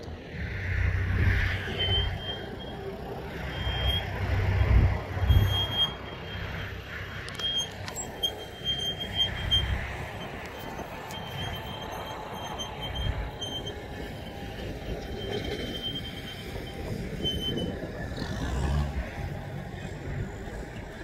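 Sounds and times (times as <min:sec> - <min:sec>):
distant diesel engine pulling: 0:00.0 - 0:21.0
wind buffeting microphone: 0:09.6 - 0:21.0.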